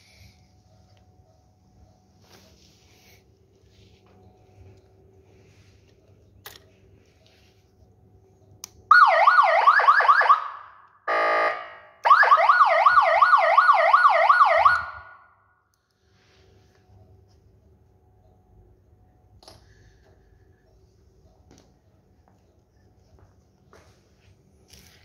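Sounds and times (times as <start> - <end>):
police siren yelping: 8.9 - 15.2.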